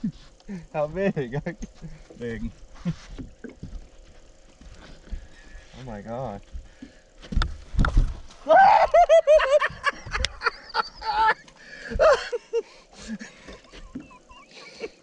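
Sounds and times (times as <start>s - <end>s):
men whooping and laughing: 8.4s - 15.0s.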